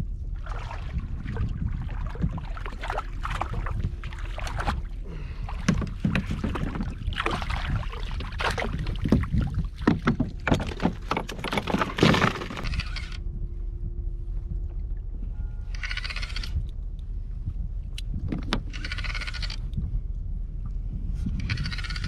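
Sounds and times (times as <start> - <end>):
low rumble: 0.0 - 22.0
water splashing against kayak hull: 0.4 - 12.8.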